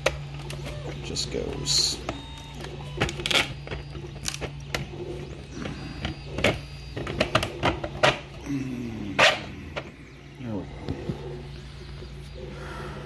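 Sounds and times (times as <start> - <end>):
plastic clicking and scraping on plastic: 2.0 - 8.3.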